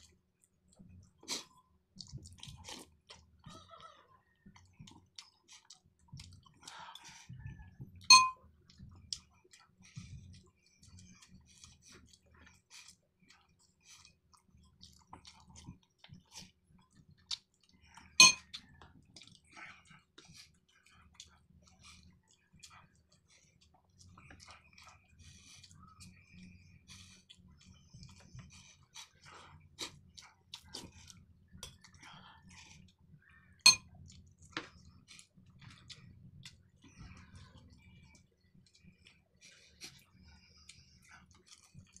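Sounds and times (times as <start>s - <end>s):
wet chewing and mouth smacking: 0.0s - 42.0s
tableware clinks: 8.1s - 8.4s, 18.2s - 18.4s.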